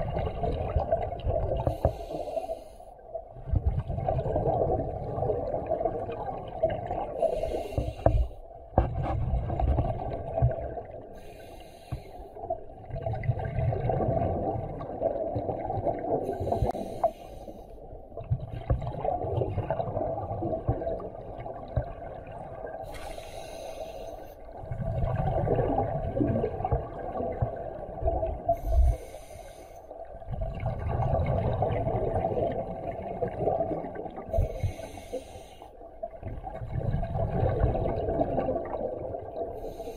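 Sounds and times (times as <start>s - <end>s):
exhaled bubbles rumbling: 0.0s - 2.2s, 3.1s - 11.3s, 12.4s - 17.0s, 17.8s - 23.2s, 24.5s - 29.2s, 30.0s - 35.0s, 35.8s - 39.9s
regulator inhale hiss: 1.6s - 3.0s, 7.2s - 8.4s, 11.2s - 12.4s, 16.3s - 17.8s, 22.8s - 24.5s, 28.5s - 30.0s, 34.3s - 35.9s, 39.6s - 39.9s.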